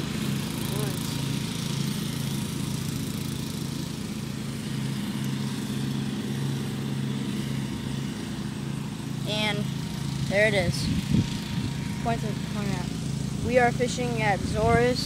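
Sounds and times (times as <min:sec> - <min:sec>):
small engine humming: 0:00.0 - 0:15.0.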